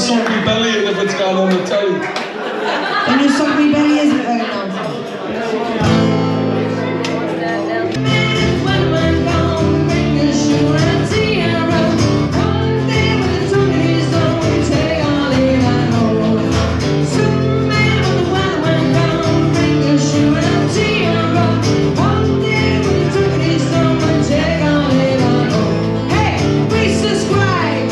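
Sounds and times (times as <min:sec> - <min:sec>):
strummed acoustic guitar: 0:03.8 - 0:27.9
upright double bass: 0:05.8 - 0:27.9
woman singing: 0:07.7 - 0:27.9.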